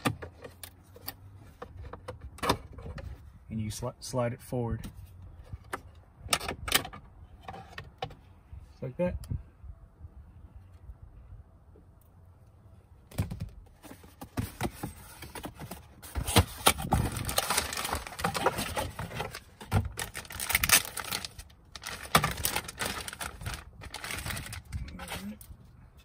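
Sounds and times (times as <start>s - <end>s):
cardboard box opened: 13.2s - 25.4s
plastic bag crinkling: 16.9s - 25.4s.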